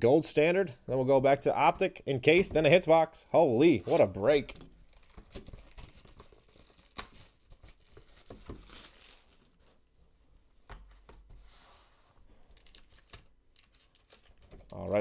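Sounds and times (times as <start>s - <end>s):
cellophane crinkling and tearing: 4.7s - 9.8s, 12.6s - 15.0s.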